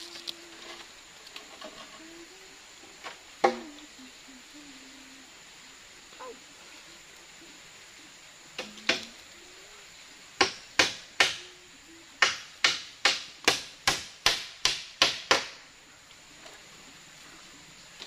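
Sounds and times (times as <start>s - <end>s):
hand tool striking bamboo frame: 10.4s - 11.4s, 12.2s - 15.6s.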